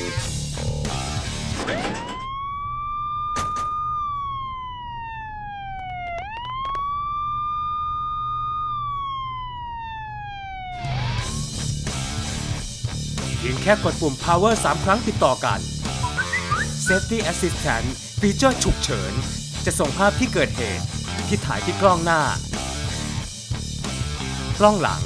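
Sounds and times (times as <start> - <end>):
guitar rock music: 0.0 - 1.6, 10.8 - 25.0
police car siren wailing: 1.5 - 11.4, 16.0 - 17.4.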